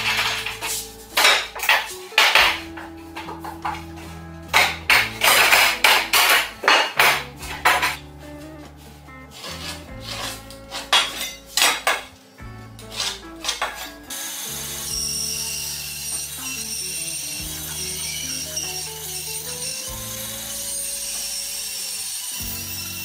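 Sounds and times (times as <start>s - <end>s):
band saw running: 0.0s - 8.0s, 12.8s - 23.0s
wooden boards clattering on workbench: 0.0s - 8.0s, 10.0s - 12.1s, 12.9s - 13.9s.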